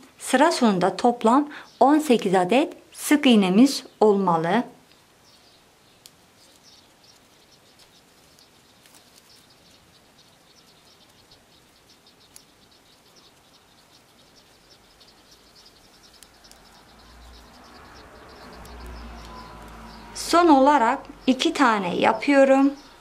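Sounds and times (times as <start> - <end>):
yarn crackling on crochet hook: 5.9 - 23.0.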